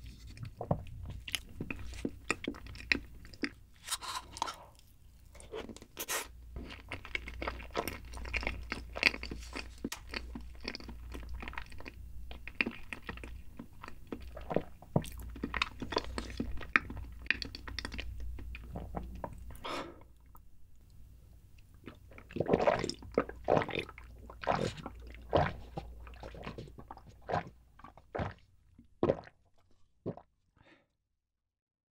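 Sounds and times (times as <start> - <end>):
person chewing with mouth clicks: 0.2 - 19.6
swallowing gulps: 6.5 - 20.4, 21.7 - 30.3.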